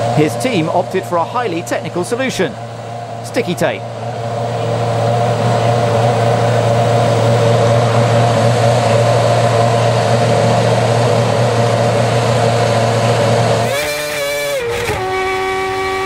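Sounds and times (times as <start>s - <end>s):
race car engine idling: 0.0s - 16.0s.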